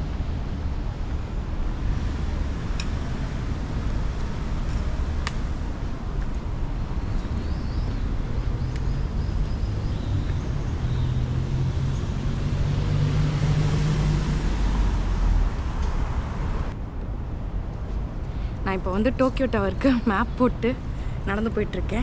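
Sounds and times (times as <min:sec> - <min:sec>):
low traffic rumble: 0:00.0 - 0:22.0
car driving by: 0:10.8 - 0:16.8.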